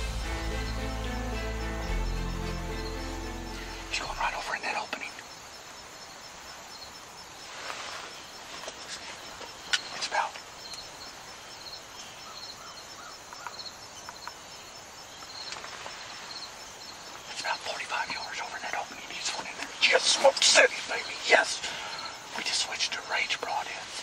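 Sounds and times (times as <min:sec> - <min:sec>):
high-pitched chirps: 0:00.0 - 0:04.7
steady hiss: 0:00.0 - 0:12.1.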